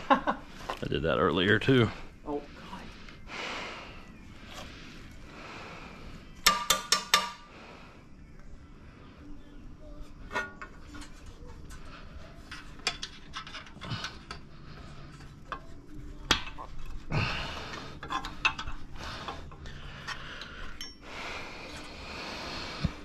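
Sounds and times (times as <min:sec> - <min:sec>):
metal tools clinking: 0:10.3 - 0:14.5, 0:18.0 - 0:21.1.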